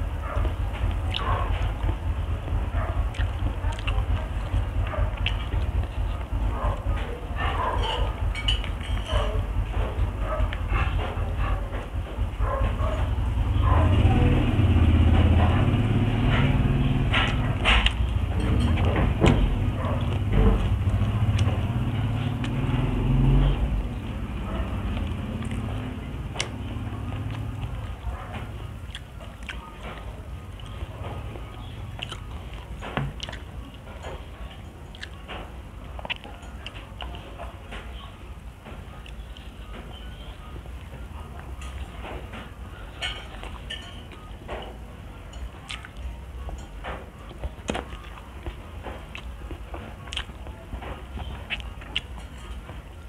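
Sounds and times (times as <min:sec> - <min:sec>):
low engine rumble: 0:00.0 - 0:53.0
low steady hum: 0:00.0 - 0:53.0
chewing and mouth smacks: 0:03.1 - 0:04.5, 0:05.1 - 0:06.0, 0:28.9 - 0:30.8, 0:31.6 - 0:33.9, 0:34.9 - 0:37.2, 0:45.6 - 0:46.6, 0:47.3 - 0:52.8.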